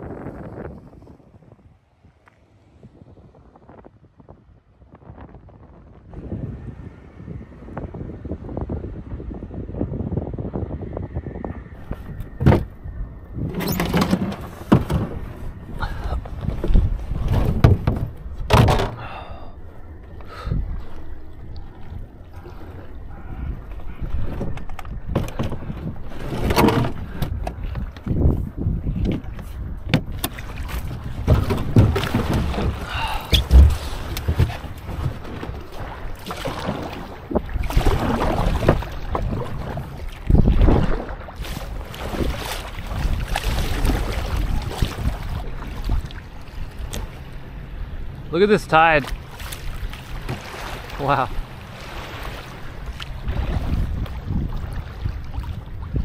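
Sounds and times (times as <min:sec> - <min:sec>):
wind buffeting microphone: 0:00.0 - 0:56.0
water sloshing against hull: 0:11.2 - 0:56.0
kayak knocking and scraping on rock: 0:11.8 - 0:12.7, 0:13.4 - 0:15.6, 0:16.2 - 0:19.2, 0:24.0 - 0:44.5
kayak paddle splashing: 0:29.1 - 0:48.2, 0:48.8 - 0:56.0.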